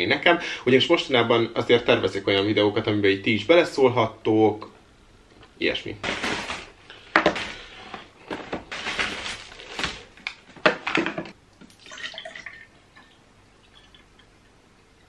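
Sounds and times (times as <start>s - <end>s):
boxes knocking on table: 6.0s - 7.6s
paper bag rustling: 6.0s - 11.0s
drink pouring into cup: 11.6s - 14.4s.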